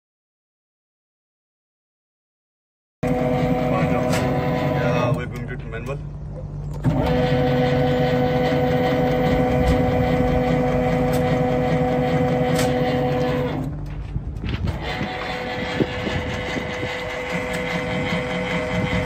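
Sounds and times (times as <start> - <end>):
electric motor humming: 3.0 - 5.5, 6.8 - 19.0.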